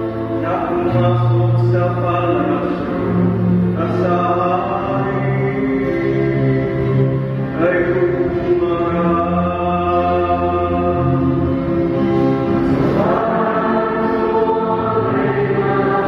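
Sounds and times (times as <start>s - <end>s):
man chanting a psalm: 0.4s - 11.2s.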